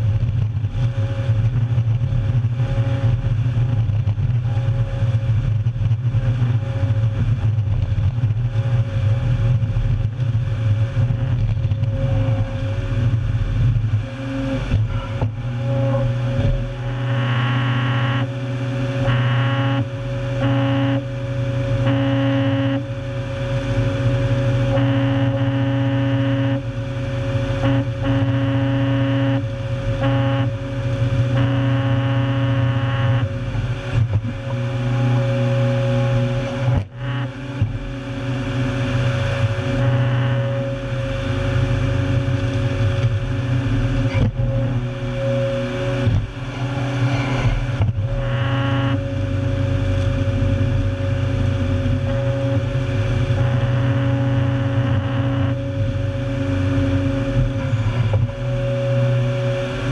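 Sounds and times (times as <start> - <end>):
diesel engine under load: 0.0 - 59.9.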